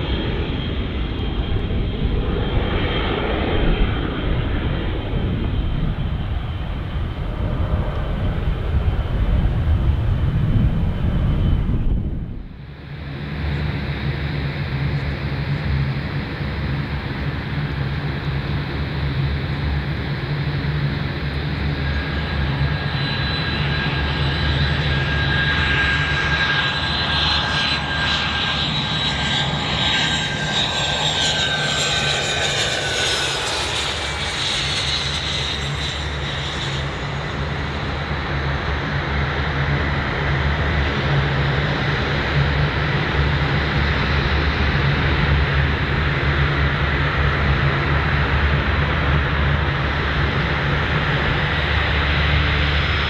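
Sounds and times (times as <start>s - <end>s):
jet engine whine: 0.0s - 53.0s
jet rumble on runway: 0.0s - 53.0s.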